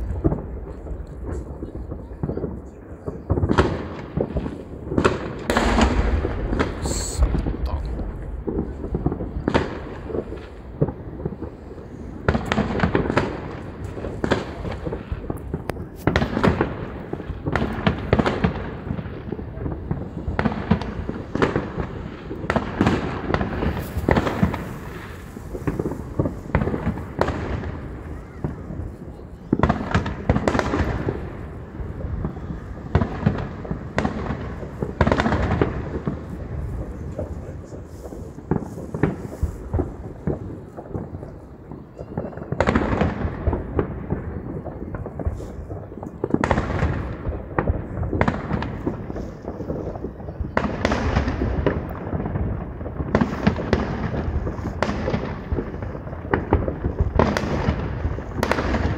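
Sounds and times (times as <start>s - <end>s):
fireworks bangs and crackles: 0.0s - 58.9s.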